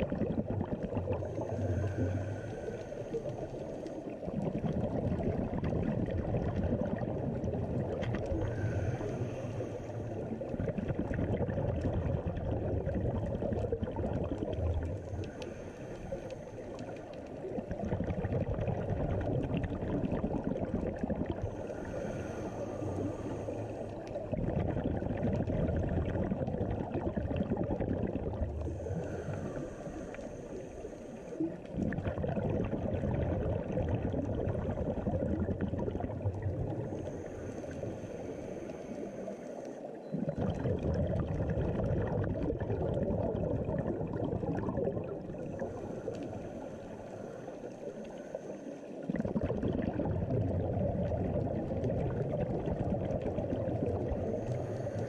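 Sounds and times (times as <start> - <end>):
bubbles gurgling underwater: 0.0 - 30.8, 31.4 - 39.0, 39.9 - 48.3, 48.9 - 55.0
low underwater rumble: 0.0 - 55.0
scuba regulator breathing: 0.5 - 5.4, 8.0 - 11.1, 13.5 - 18.5, 19.4 - 25.1, 26.4 - 32.3, 34.5 - 41.0, 43.7 - 49.4, 53.8 - 55.0.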